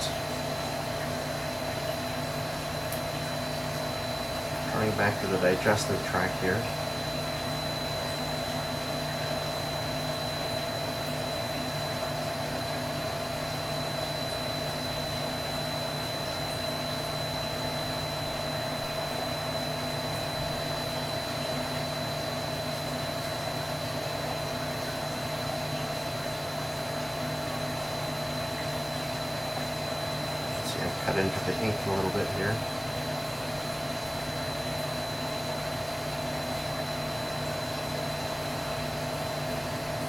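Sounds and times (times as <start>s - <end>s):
motor hum: 0.0s - 40.0s
thin high whine: 3.0s - 12.1s, 27.7s - 38.2s.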